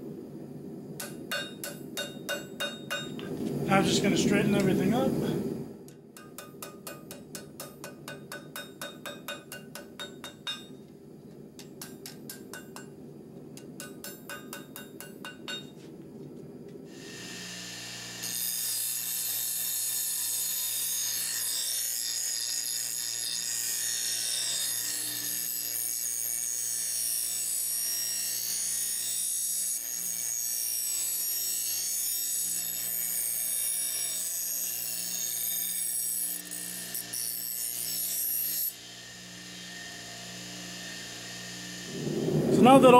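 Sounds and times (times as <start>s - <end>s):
hammer striking steel on anvil: 1.0s - 3.3s, 5.9s - 10.8s, 11.6s - 13.0s, 13.6s - 15.8s.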